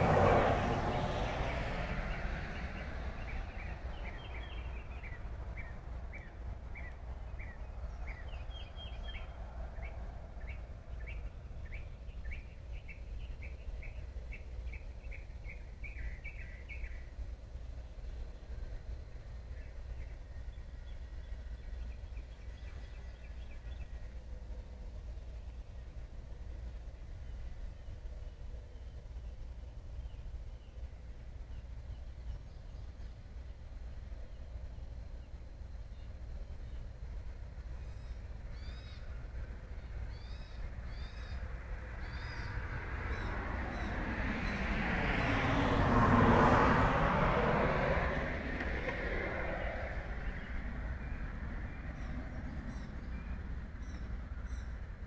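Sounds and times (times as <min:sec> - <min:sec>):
faint bird chirps: 0:02.6 - 0:17.2, 0:37.7 - 0:39.3, 0:40.0 - 0:43.9
steady low rumble: 0:46.8 - 0:55.0.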